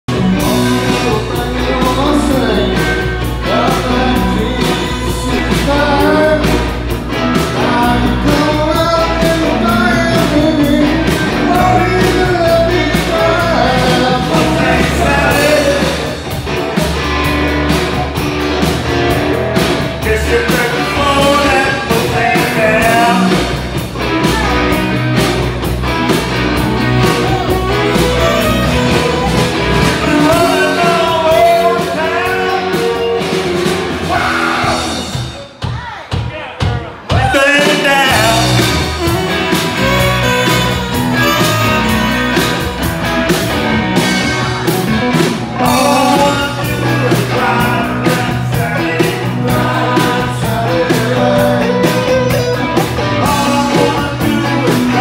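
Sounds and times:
live rock and roll band: 0.1 - 55.0
man singing into microphone: 0.4 - 6.8, 7.4 - 16.2, 20.0 - 23.6, 26.9 - 33.4, 34.0 - 35.2, 37.1 - 39.1, 45.6 - 55.0.

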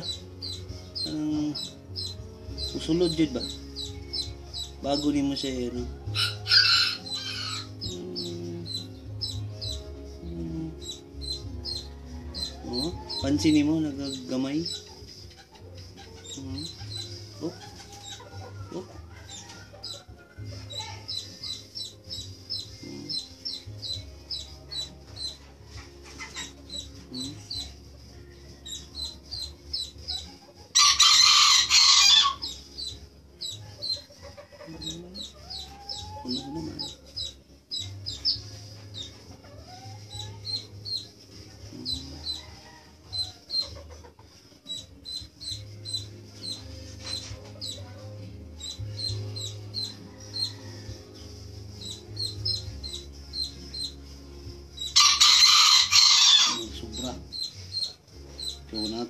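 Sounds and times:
chick peeping rapidly: 0.0 - 59.0
rooster crowing: 6.2 - 7.7, 30.8 - 32.4, 55.0 - 56.6.

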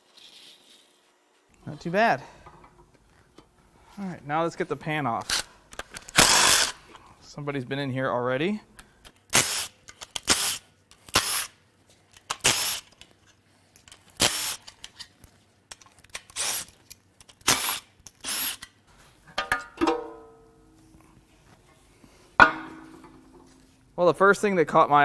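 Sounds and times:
cordless power tool bursts: 6.1 - 6.8
metal clank with ringing: 19.4 - 20.7, 22.4 - 23.6
sharp metal clang: 19.4 - 20.8, 22.4 - 23.6.

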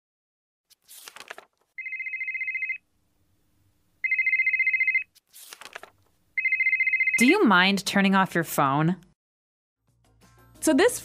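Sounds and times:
telephone ringing: 1.8 - 2.8, 4.0 - 5.1, 6.4 - 7.4.

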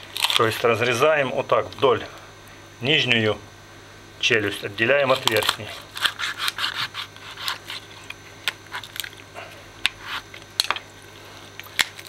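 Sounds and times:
knife crunching through fish bone: 5.1 - 10.9.

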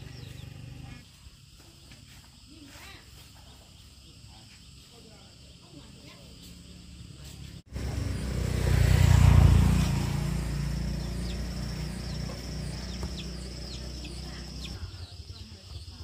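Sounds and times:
vehicle engine running: 0.0 - 1.0, 6.8 - 16.0.

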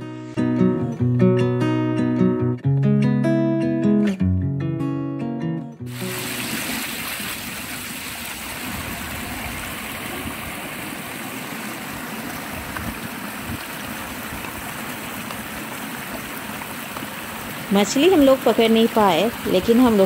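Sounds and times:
water rushing over rocks: 5.9 - 20.0.

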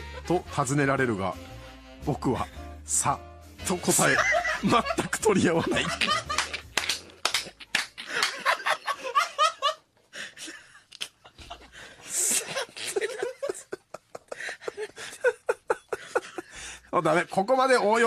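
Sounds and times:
men laughing: 3.9 - 16.9
sharp slaps: 6.3 - 8.4.

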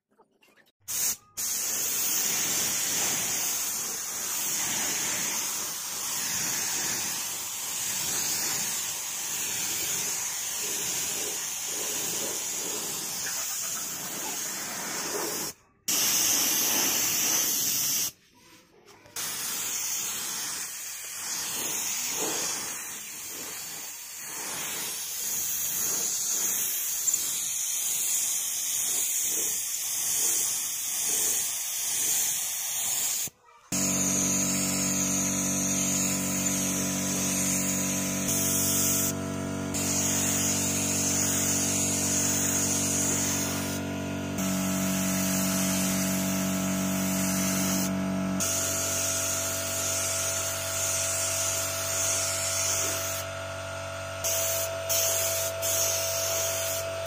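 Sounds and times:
spray gun hissing: 0.9 - 18.2, 19.0 - 53.2, 54.2 - 56.8
motor hum: 33.7 - 54.2.

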